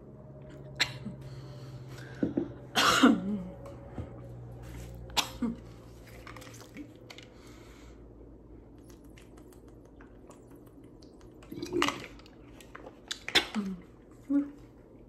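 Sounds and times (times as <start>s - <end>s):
sipping and swallowing: 8.7s - 14.2s.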